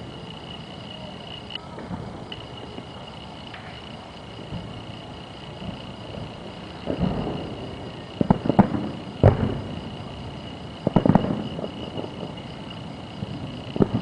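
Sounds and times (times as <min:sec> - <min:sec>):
distant firework bangs echoing: 0:06.8 - 0:09.9, 0:10.8 - 0:12.4.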